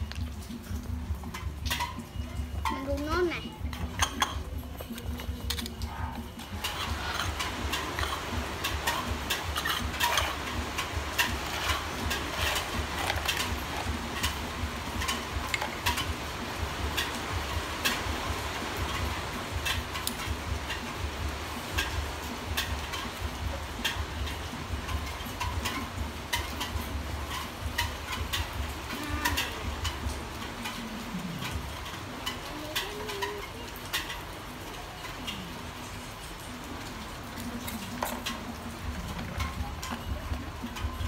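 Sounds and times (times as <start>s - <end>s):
plastic utensils clicking: 3.7s - 5.8s, 6.4s - 16.2s.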